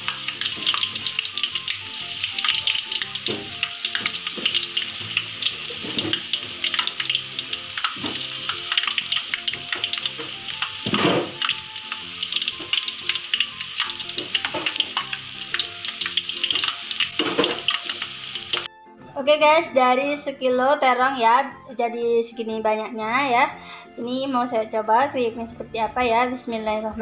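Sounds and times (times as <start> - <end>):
food deep-frying in oil: 0.0 - 18.7.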